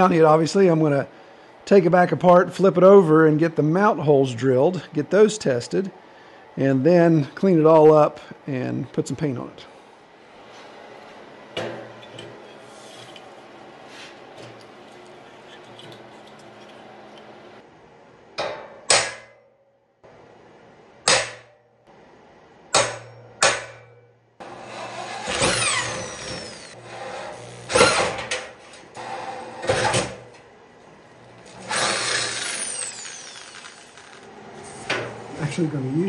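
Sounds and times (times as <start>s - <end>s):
drill squealing: 24.5s - 28.2s, 31.5s - 34.3s
electric drill boring through steel: 24.5s - 28.2s, 31.5s - 34.3s.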